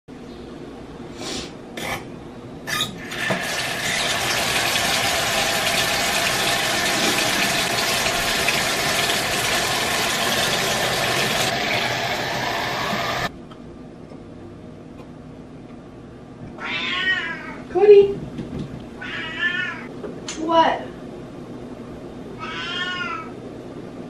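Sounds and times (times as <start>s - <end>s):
tap water splashing in sink: 3.1s - 13.3s.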